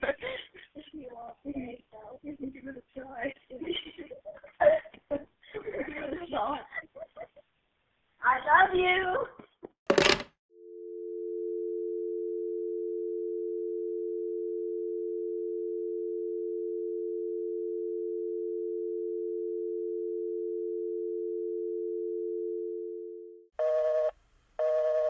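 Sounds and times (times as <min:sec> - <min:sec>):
busy signal beeps: 0:10.6 - 0:25.0
telephone dial tone: 0:10.6 - 0:25.0.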